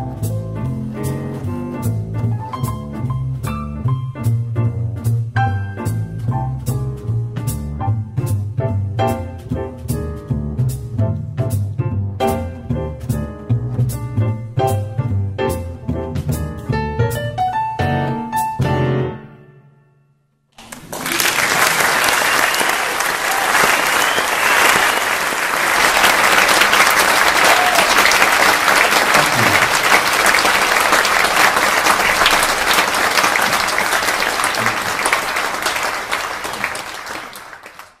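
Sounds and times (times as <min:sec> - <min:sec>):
audience applauding: 0:20.6 - 0:38.0.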